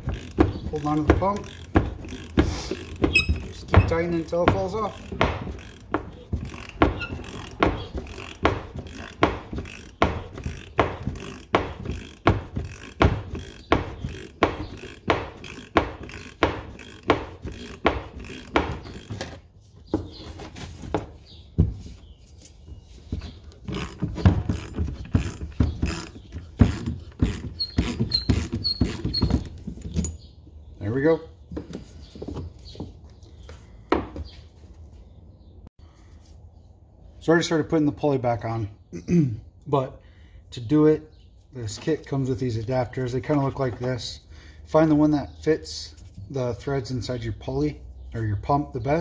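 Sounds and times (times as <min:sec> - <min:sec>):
ratchet clicking: 0:00.0 - 0:03.6, 0:04.2 - 0:19.3.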